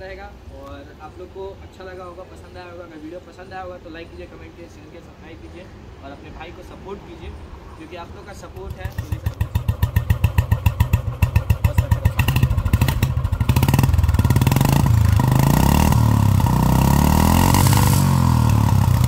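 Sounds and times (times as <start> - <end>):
motorcycle engine idling and revving: 8.4 - 19.0.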